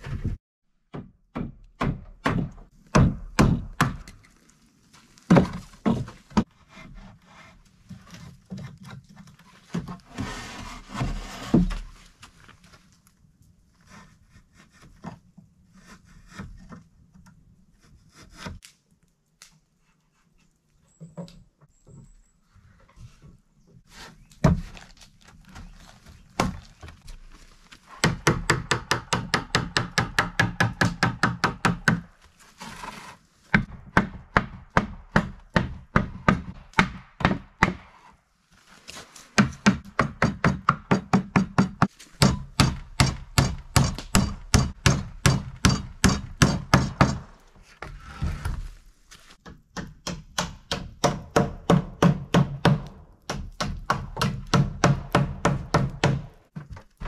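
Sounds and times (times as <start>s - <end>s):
hammer driving nails into wood: 28.0s - 32.0s, 39.4s - 47.4s, 49.4s - 56.4s.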